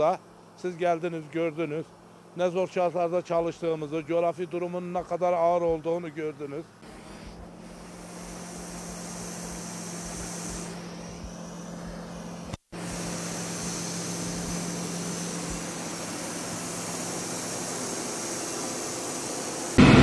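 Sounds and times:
bulldozer diesel engine running: 6.8 - 20.0.

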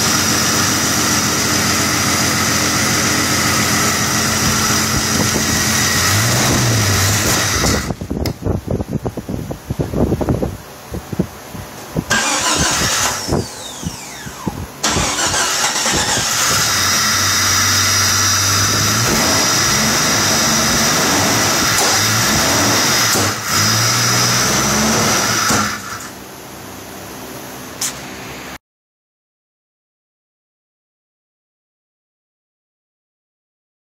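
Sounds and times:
car engine running: 0.0 - 9.1, 12.1 - 26.1
high engine whine: 0.0 - 28.6.

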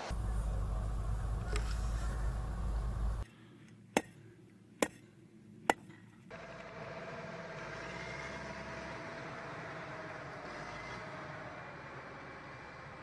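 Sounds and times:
diesel engine running: 0.0 - 3.2, 6.3 - 13.0
faint whine: 0.0 - 5.6.

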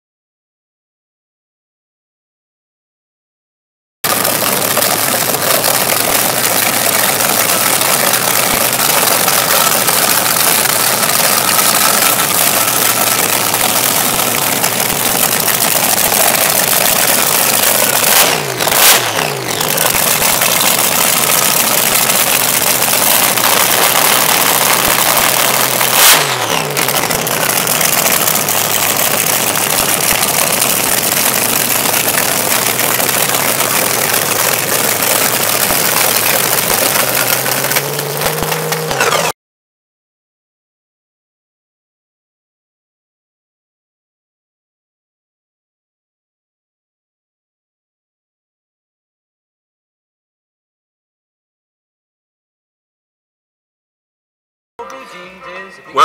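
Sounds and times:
dragster engine idling and revving: 4.0 - 39.3.

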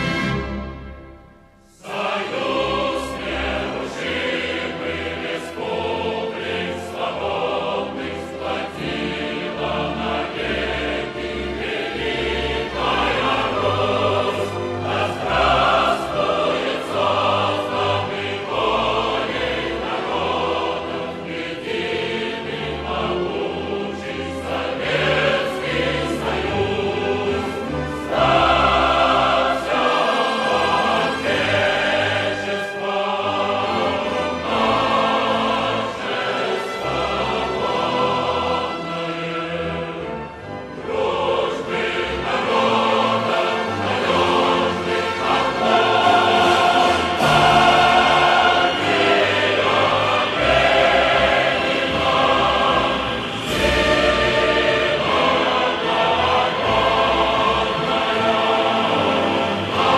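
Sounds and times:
choir singing sustained chords: 0.0 - 59.9.

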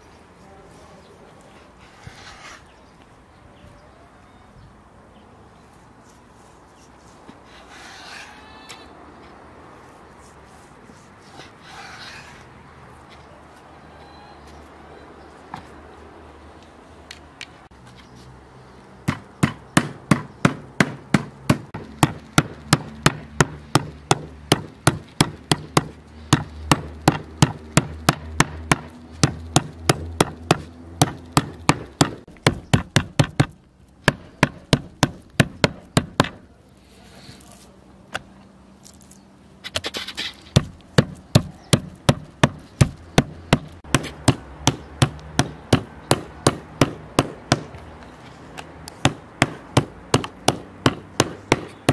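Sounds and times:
meat mallet pounding meat: 19.1 - 36.4, 40.6 - 47.7, 49.0 - 51.9.

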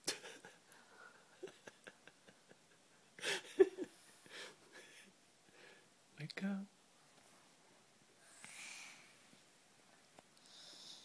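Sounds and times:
person breathing: 4.1 - 5.9, 8.2 - 9.3, 10.4 - 11.0.

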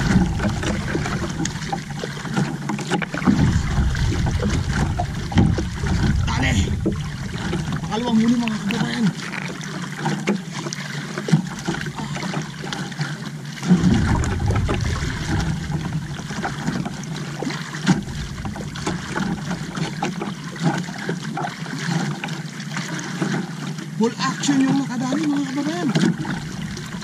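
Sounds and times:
low rumble: 0.0 - 9.5, 13.6 - 21.1, 26.2 - 27.0
water lapping against canoe hull: 0.0 - 27.0.

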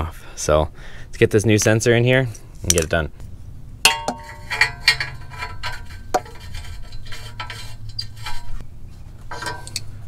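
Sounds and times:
metallic clinks and scrapes: 4.0 - 10.0.

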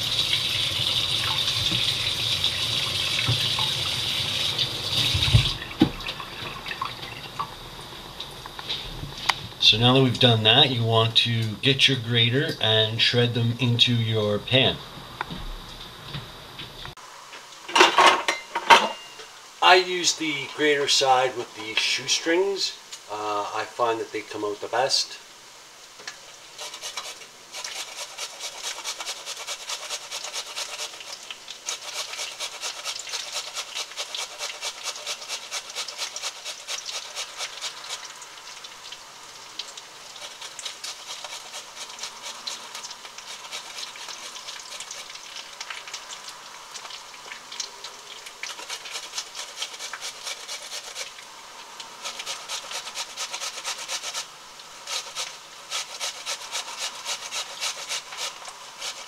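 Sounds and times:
potato grated on metal grater: 26.6 - 38.2, 40.1 - 45.3, 48.4 - 51.2, 51.9 - 59.0.

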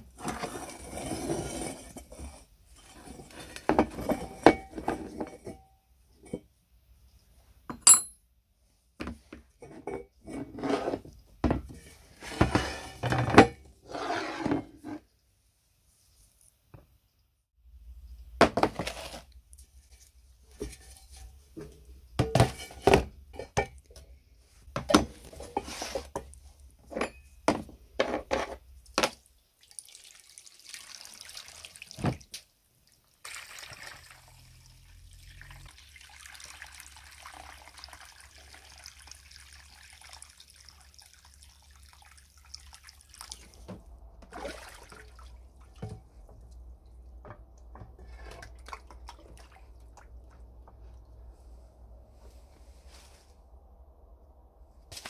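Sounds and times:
iron parts clunking into plastic tub: 20.6 - 23.8
hose water splashing into tub: 29.2 - 51.0.

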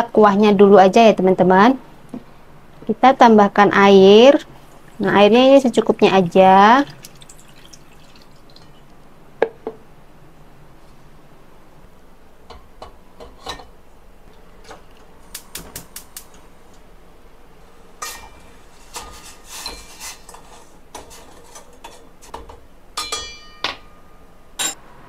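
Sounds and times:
metal spoon clinking on saucepan: 23.0 - 24.0.

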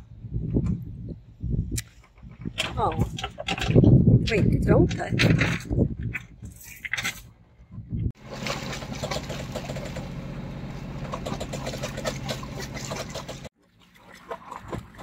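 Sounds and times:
boat engine humming: 8.2 - 15.0
water rushing along hull: 8.2 - 15.0.

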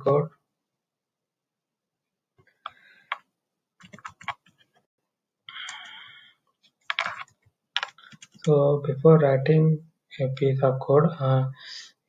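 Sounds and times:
computer keyboard typing: 3.8 - 4.6, 6.9 - 8.5.

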